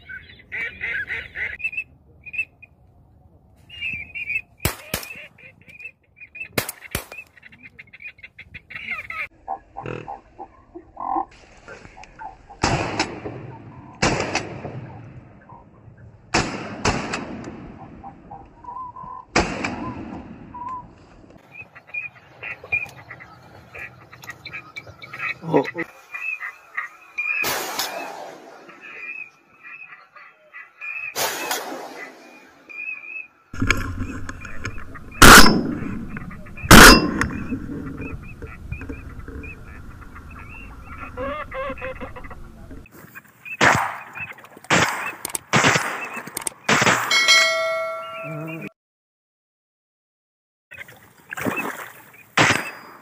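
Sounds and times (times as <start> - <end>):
shotgun shots with echo: 27.4 - 28.7, 31.2 - 32.4, 34.6 - 38.2, 43.6 - 44.1, 44.7 - 47.2.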